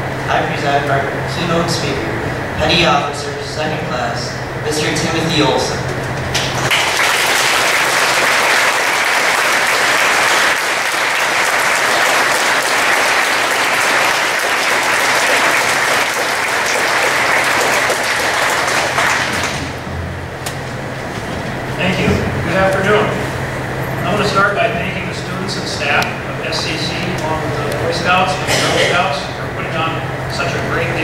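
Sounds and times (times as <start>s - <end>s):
audience applauding: 6.3s - 19.8s.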